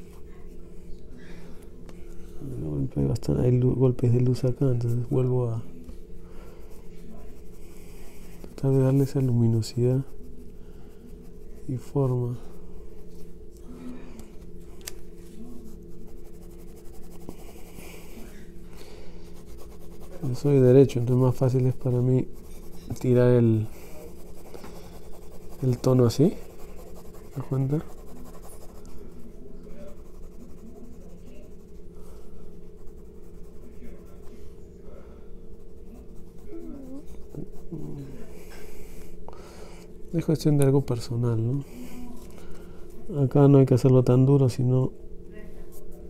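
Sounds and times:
steady low hum: 0.0s - 46.0s
pencil scratching on paper: 6.6s - 13.3s, 15.6s - 18.5s, 19.2s - 34.3s, 35.6s - 37.9s.

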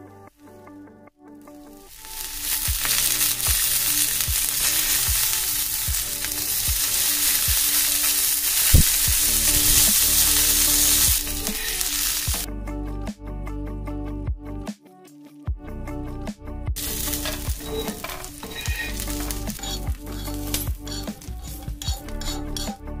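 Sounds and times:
food sizzling on a hot pan: 1.8s - 12.5s, 16.8s - 22.7s.

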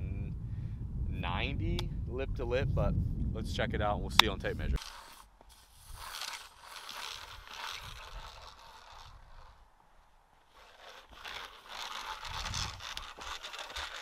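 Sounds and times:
tape measure scraping and rustling: 4.4s - 9.6s, 10.4s - 14.0s.

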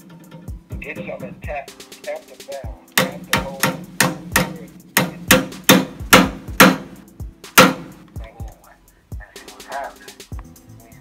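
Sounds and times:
background music: 0.0s - 11.0s
sharp ringing knocks: 3.0s - 7.0s, 7.6s - 8.0s.

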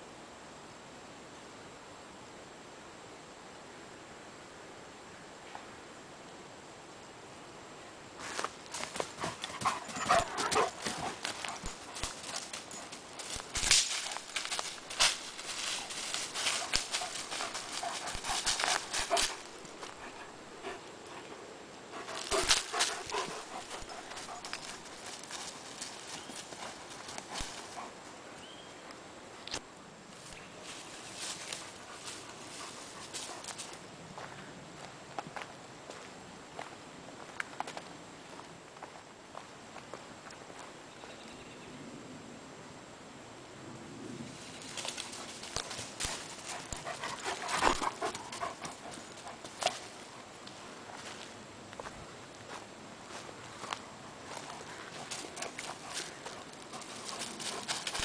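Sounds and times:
footsteps crunching on dry leaves: 8.2s - 20.3s, 22.0s - 27.9s, 30.2s - 34.3s, 44.3s - 58.0s
brush rustling: 8.2s - 28.4s, 30.2s - 33.8s, 44.3s - 58.0s
twigs cracking underfoot: 10.4s - 20.0s, 44.6s - 50.6s, 53.6s - 58.0s.

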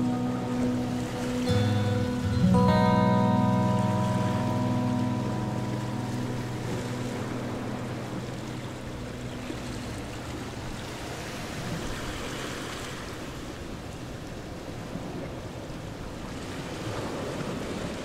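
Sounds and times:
background music: 0.0s - 11.4s.

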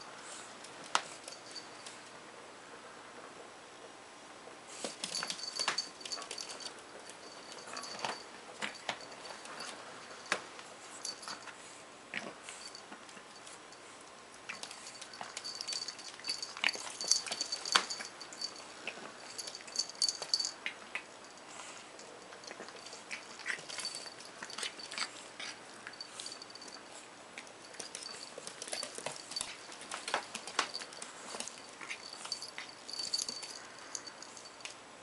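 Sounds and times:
puppy claws clicking on wooden floor: 14.5s - 18.6s, 27.4s - 33.6s.

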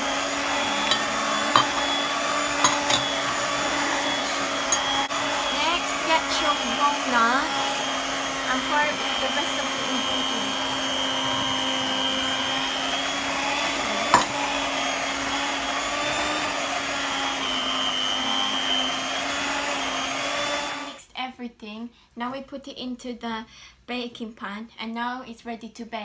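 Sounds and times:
beaters churning thick batter: 0.0s - 21.0s
electric hand mixer running: 0.0s - 21.0s.

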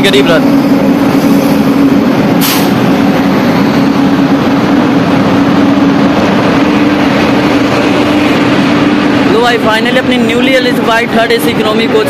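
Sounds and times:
low hum: 0.4s - 10.3s.

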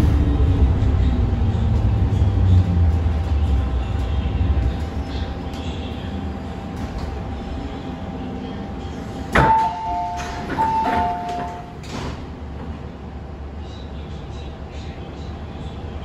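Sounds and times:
train equipment hum: 0.0s - 16.0s
train doors sliding open: 8.8s - 13.0s
two-note door chime: 9.4s - 11.7s.

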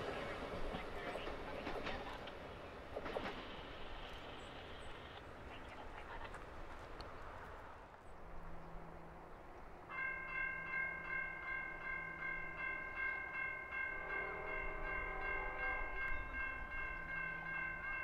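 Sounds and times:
railroad crossing bell ringing: 9.8s - 18.0s.

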